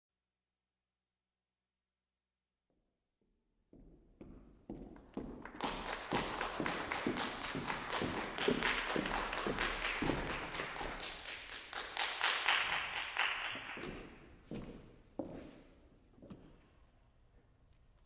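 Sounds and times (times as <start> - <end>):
audience applause: 5.4 - 13.9.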